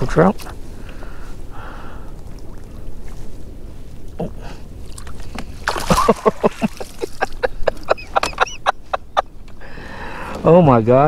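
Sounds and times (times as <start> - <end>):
fish splashing at surface: 4.9 - 7.1.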